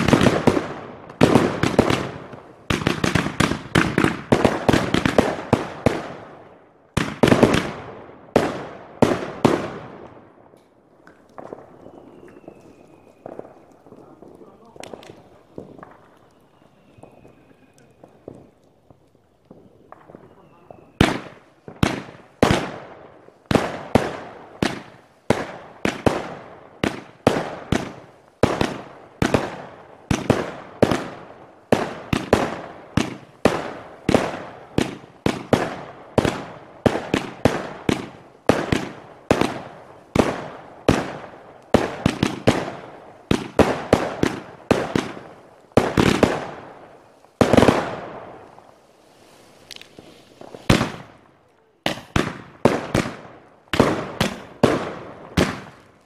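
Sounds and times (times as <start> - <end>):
fireworks bursting: 0.0 - 56.0.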